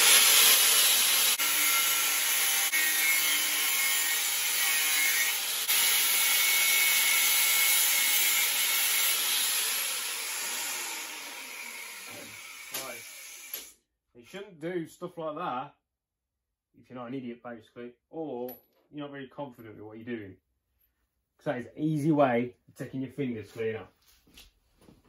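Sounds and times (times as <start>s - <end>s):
angle grinder cutting metal: 0.0s - 13.8s.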